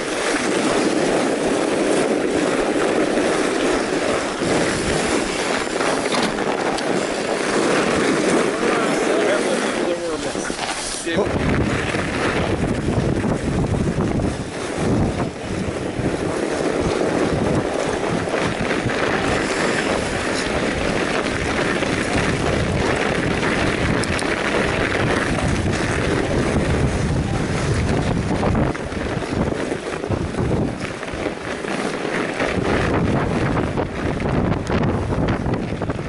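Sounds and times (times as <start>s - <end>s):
tyres rolling on packed snow: 0.0s - 36.0s
wind buffeting microphone: 0.0s - 36.0s
bike clicks and rattles: 1.5s - 8.5s, 16.3s - 26.1s.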